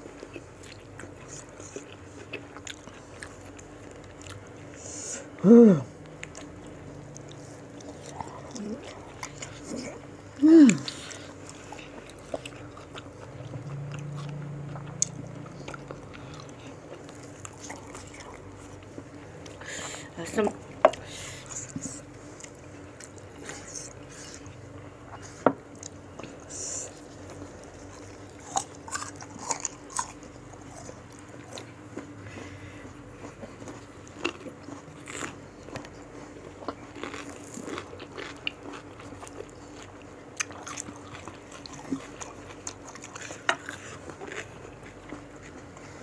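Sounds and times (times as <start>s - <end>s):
crunchy biting and chewing: 6.1s - 19.6s, 21.4s - 46.0s.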